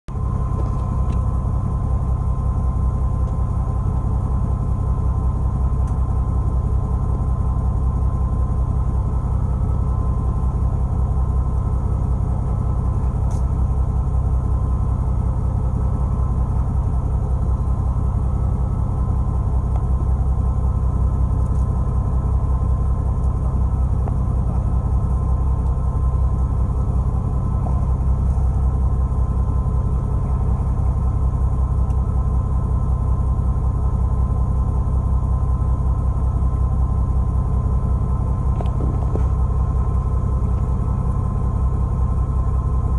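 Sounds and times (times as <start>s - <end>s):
boat engine droning: 0.1s - 35.0s, 36.8s - 42.9s
faint steady whine: 0.2s - 42.9s.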